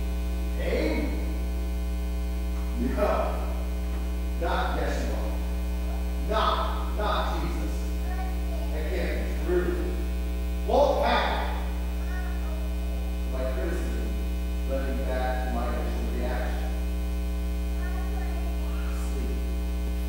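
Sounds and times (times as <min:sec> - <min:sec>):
electrical mains hum: 0:00.0 - 0:20.0
man's voice: 0:00.6 - 0:01.4, 0:02.6 - 0:03.7, 0:04.4 - 0:05.4, 0:06.2 - 0:07.9, 0:08.7 - 0:10.0, 0:10.7 - 0:11.7, 0:13.3 - 0:14.1, 0:14.7 - 0:16.8.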